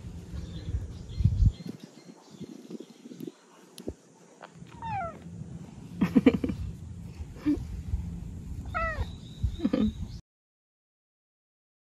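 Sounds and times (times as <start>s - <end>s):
cat meowing: 4.8s - 5.2s, 8.7s - 9.1s.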